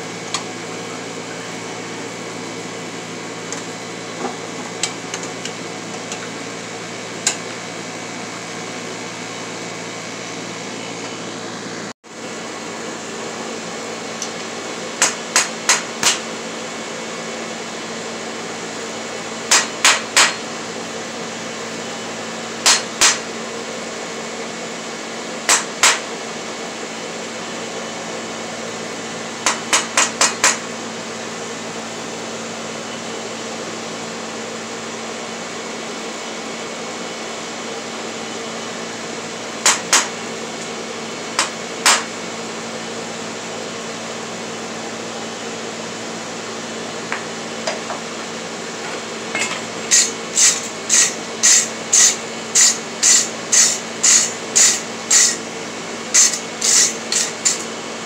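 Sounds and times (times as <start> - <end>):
steady background hum: 0.0 - 58.0
hammer striking steel on anvil: 15.0 - 16.3, 19.5 - 20.5, 22.6 - 23.3, 25.5 - 26.1, 29.4 - 30.6, 39.6 - 40.2, 41.4 - 42.1, 49.3 - 55.4, 56.2 - 57.7
wire brush scrubbing metal: 49.9 - 55.4, 56.1 - 57.7.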